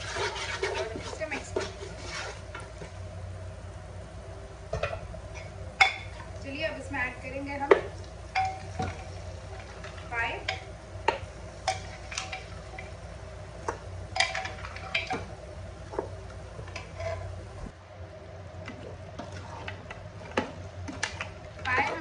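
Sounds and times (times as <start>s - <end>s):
spatula knocking and scraping pot: 0.0s - 2.9s
low steady hum: 0.0s - 22.0s.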